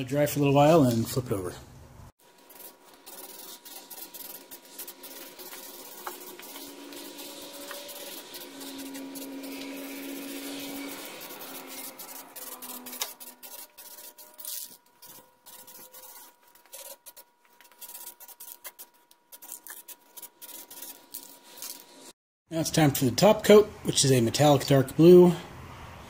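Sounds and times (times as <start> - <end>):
aerosol can spraying: 2.3 - 16.2
aerosol can rattling: 2.5 - 15.8.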